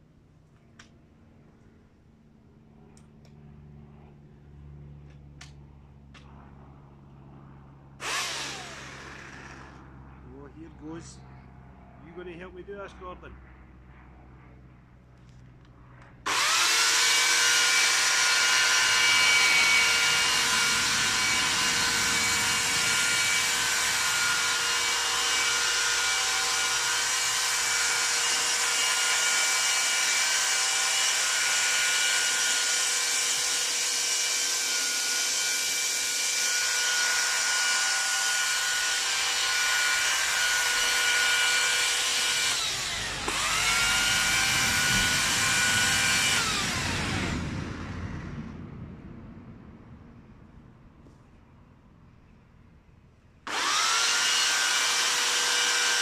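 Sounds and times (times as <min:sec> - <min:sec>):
electric hedge cutter motor whine: 0:08.0 - 0:11.0, 0:16.2 - 0:48.0, 0:53.4 - 0:56.0.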